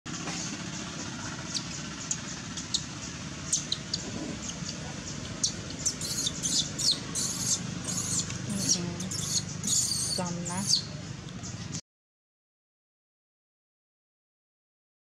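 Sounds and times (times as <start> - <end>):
steady low hum: 0.1 - 11.8
baby monkey squeaking: 1.5 - 10.9.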